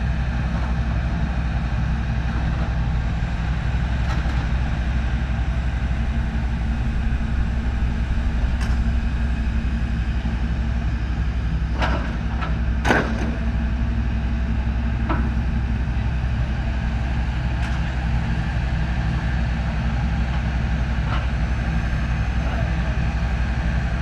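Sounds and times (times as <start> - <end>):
excavator diesel engine droning: 0.0 - 24.0.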